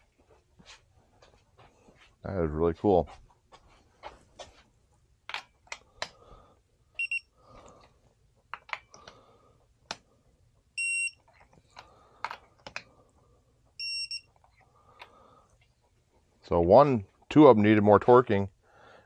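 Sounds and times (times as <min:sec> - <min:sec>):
torque wrench beeping: 0:07.0 - 0:07.2.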